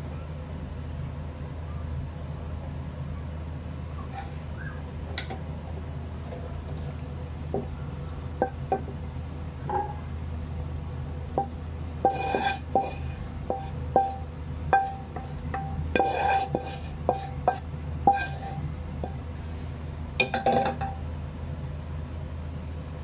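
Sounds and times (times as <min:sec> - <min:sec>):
utensil scraping frying pan: 0:04.0 - 0:09.0, 0:11.4 - 0:20.9
utensil knocking on frying pan: 0:07.5 - 0:07.7, 0:08.4 - 0:09.0, 0:11.4 - 0:19.2.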